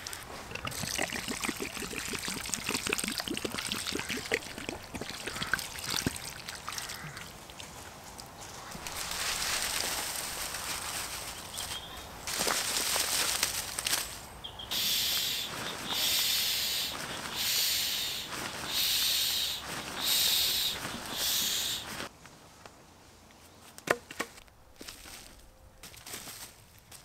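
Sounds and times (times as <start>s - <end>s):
camping gear rustling: 6.9s - 14.3s, 15.2s - 22.7s, 23.3s - 27.0s.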